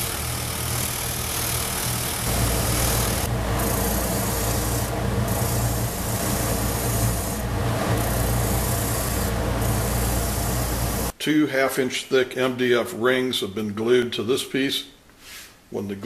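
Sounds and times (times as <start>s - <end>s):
disc sander running: 0.0s - 11.1s
spindle sander grinding hiss: 0.0s - 11.1s.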